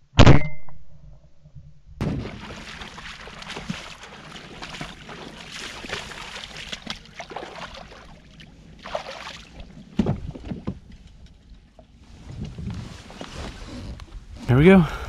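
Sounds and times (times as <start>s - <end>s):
thump and splash into kayak: 2.0s - 8.1s, 8.8s - 11.1s
splashing steps in shallow water: 2.0s - 10.9s.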